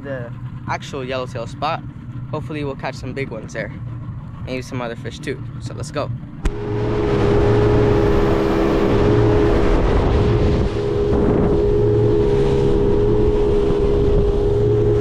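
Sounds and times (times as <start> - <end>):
motorboat engine drone: 0.0 - 15.0
rush of wind and water: 4.2 - 15.0.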